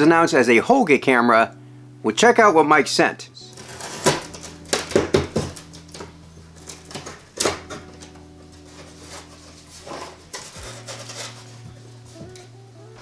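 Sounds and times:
knife slitting packing tape: 0:03.5 - 0:05.0, 0:08.7 - 0:11.6
cardboard rustling: 0:03.5 - 0:12.5.

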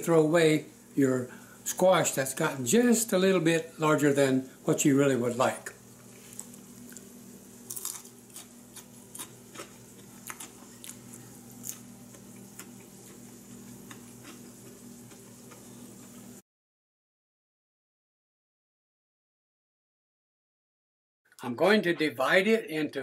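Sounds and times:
steady low hum: 0:00.0 - 0:16.4
person chewing crunchy food: 0:06.0 - 0:16.2.

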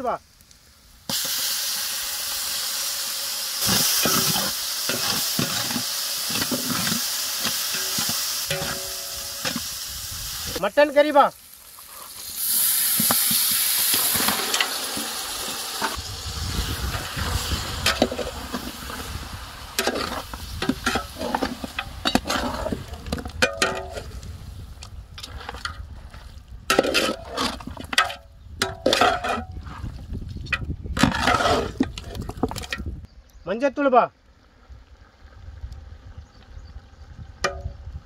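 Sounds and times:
meat sizzling in oil: 0:00.8 - 0:22.9
metal ladle scraping a pan: 0:03.6 - 0:09.7, 0:17.4 - 0:19.0, 0:19.8 - 0:24.2, 0:25.2 - 0:32.8.

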